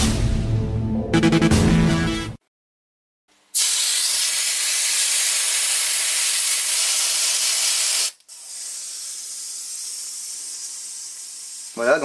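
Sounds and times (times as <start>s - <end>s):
gas hissing from pistol magazine: 3.6s - 11.8s.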